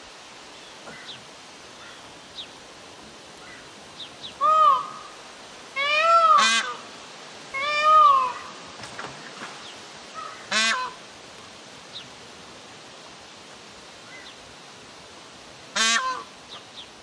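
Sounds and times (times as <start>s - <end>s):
peafowl calling: 3.4s - 5.2s, 5.8s - 6.9s, 7.5s - 8.6s, 10.1s - 11.1s, 15.8s - 16.9s.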